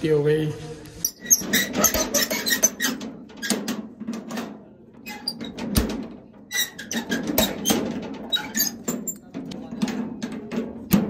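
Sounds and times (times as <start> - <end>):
metal bolt squeaking and scraping: 1.0 - 4.3, 5.0 - 9.6.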